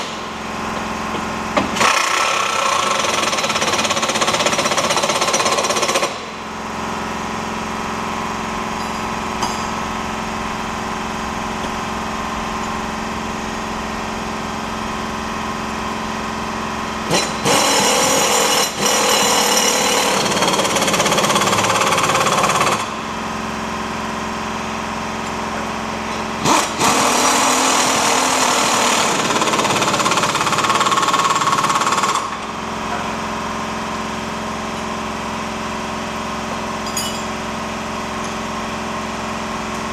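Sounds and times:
impact wrench hammering: 0.0s - 6.4s, 8.8s - 10.0s, 17.1s - 23.0s
steady hum: 6.3s - 17.1s.

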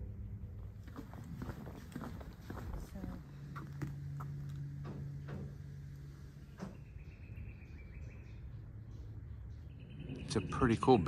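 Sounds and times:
low steady hum: 0.0s - 11.0s
footsteps on wooden boardwalk: 0.6s - 5.2s.

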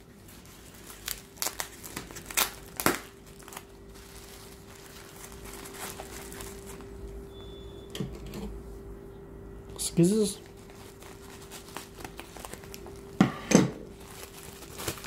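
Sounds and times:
bubble wrap crinkling: 0.0s - 7.6s, 10.1s - 13.2s, 13.8s - 15.0s.

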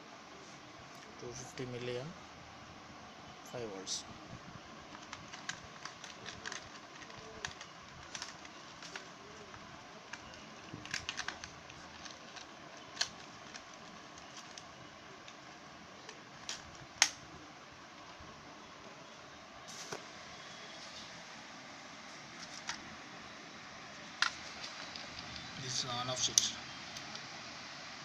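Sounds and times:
faint hiss: 15.0s - 28.0s.

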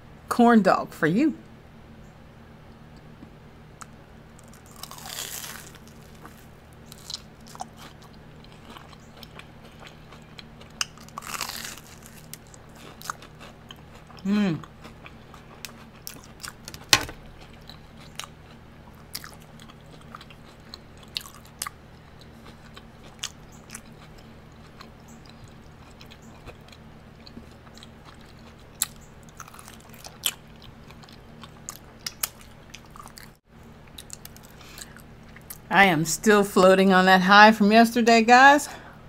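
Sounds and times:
chewing and biting fried food: 3.8s - 35.6s
crisp crunches: 4.4s - 9.4s, 10.9s - 13.5s.

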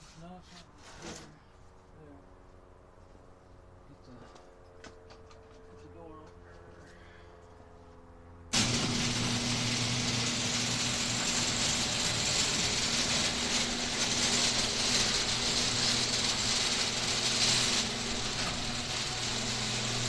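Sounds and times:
garage door opener motor hum: 8.5s - 20.0s.

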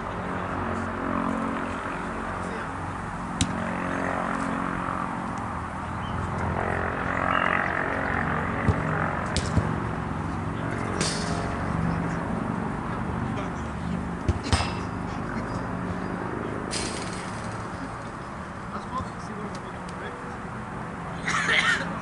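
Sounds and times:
football being kicked: 8.6s - 9.8s, 14.2s - 14.9s.

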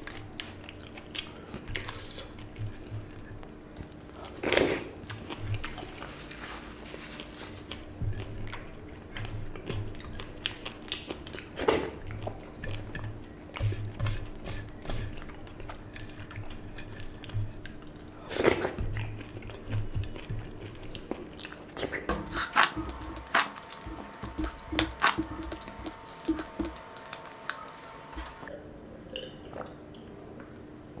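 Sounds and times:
person chewing and lip smacking: 0.0s - 6.1s, 7.2s - 28.5s
person licking fingers: 22.2s - 28.4s.

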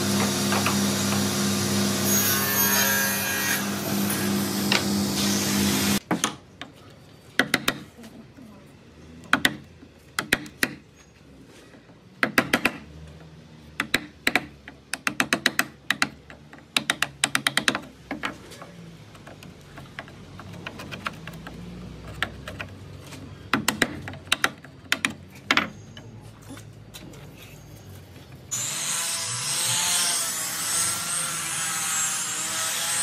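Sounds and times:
hammer tapping wood chisel: 7.4s - 7.9s, 12.2s - 12.8s, 13.8s - 22.8s, 23.4s - 25.7s.

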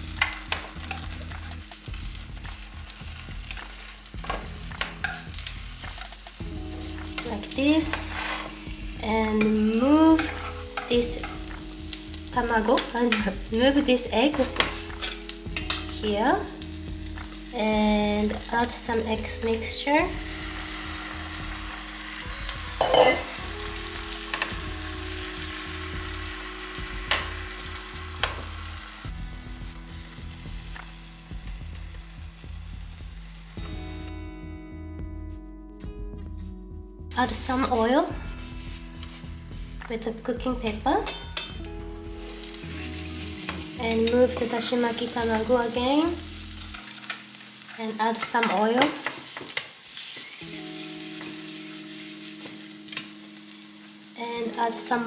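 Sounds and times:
egg sizzling in a pan: 0.0s - 33.8s, 38.2s - 55.0s
chopsticks clicking against pan: 14.4s - 15.9s
spatula tapping and scraping pan: 22.7s - 23.3s.

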